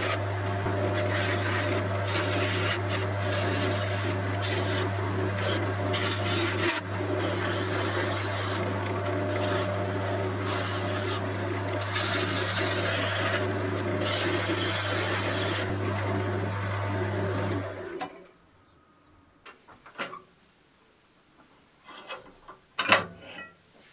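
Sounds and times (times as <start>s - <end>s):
turning tool scraping wood: 0.0s - 15.7s
wood lathe motor hum: 0.0s - 18.1s.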